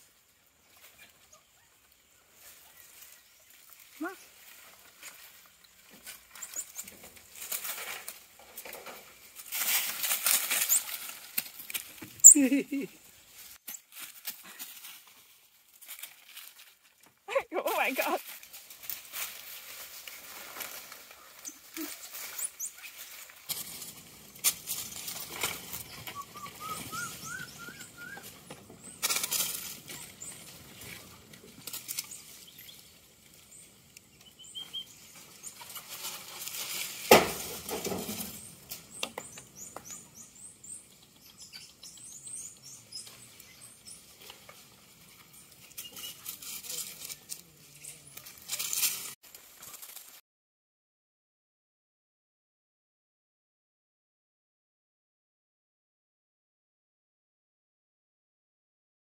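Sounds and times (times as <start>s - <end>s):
rustling in dry leaves: 0.0s - 50.2s
monkeys chirping: 12.2s - 13.0s, 25.8s - 31.0s.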